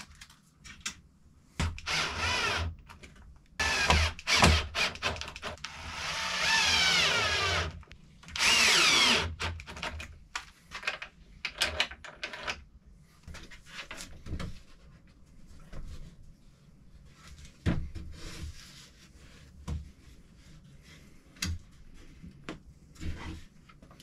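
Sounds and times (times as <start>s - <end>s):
cordless drill boring into wood: 1.6s - 2.7s, 3.6s - 9.8s.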